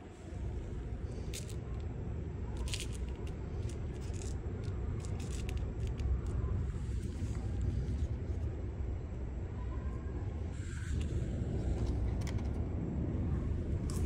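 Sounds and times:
low rumble: 0:00.0 - 0:14.0
scraping and crinkling handling: 0:02.6 - 0:08.6.

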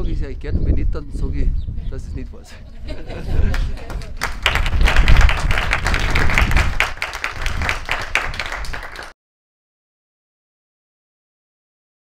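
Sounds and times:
audience applauding: 0:03.4 - 0:09.1.

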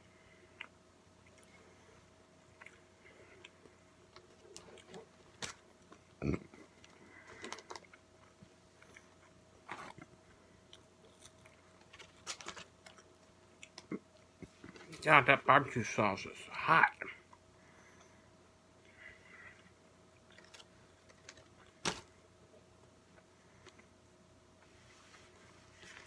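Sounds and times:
person chewing food: 0:00.3 - 0:14.8, 0:18.8 - 0:21.8.

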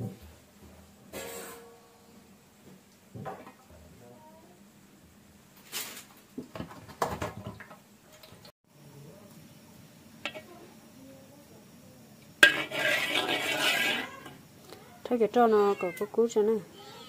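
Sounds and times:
metal colander and pot clanking: 0:10.2 - 0:10.5, 0:12.4 - 0:14.4.

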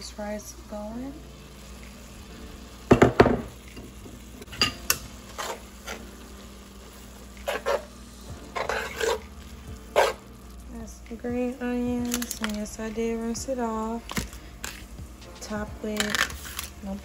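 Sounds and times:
meat sizzling: 0:00.0 - 0:17.0
utensil scraping a skillet: 0:04.5 - 0:06.1, 0:07.4 - 0:10.3.

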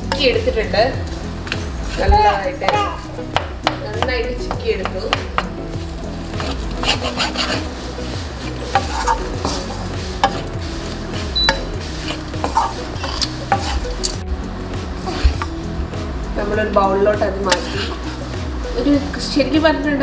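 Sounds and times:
spatula scraping wok: 0:00.0 - 0:03.2, 0:05.4 - 0:16.1, 0:16.7 - 0:19.5
light frying sizzle: 0:00.0 - 0:20.0.

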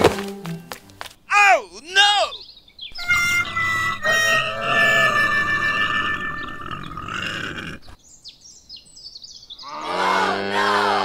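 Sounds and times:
cow mooing: 0:03.2 - 0:07.8, 0:09.7 - 0:11.0.

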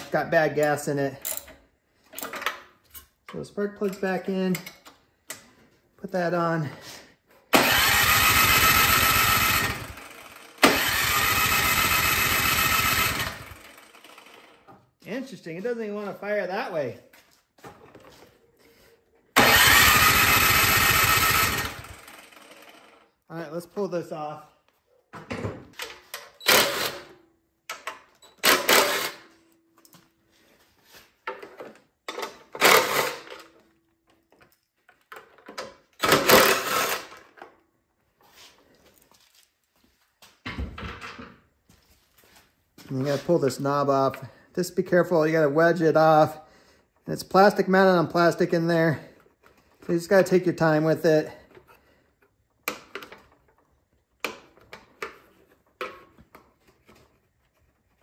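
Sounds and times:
engine cranking with electric starter: 0:07.5 - 0:14.7, 0:19.3 - 0:23.1, 0:26.4 - 0:27.2, 0:28.4 - 0:29.3, 0:32.5 - 0:33.5, 0:36.0 - 0:37.4
starter whine: 0:07.5 - 0:14.7, 0:19.4 - 0:23.1
cordless power driver running: 0:07.6 - 0:14.6, 0:19.4 - 0:23.0.

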